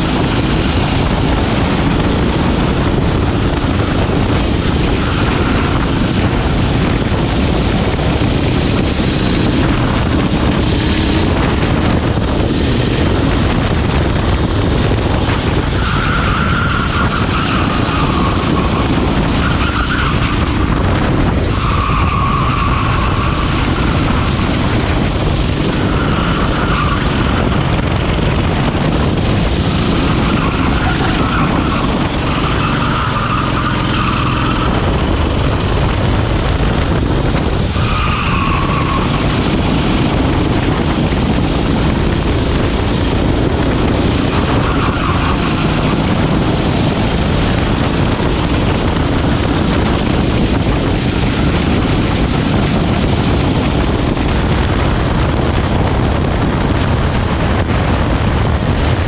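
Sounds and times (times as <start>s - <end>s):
kart engine running: 0.0s - 59.0s
tyres squealing: 15.8s - 20.7s, 29.9s - 34.8s, 37.7s - 39.6s, 44.3s - 46.0s.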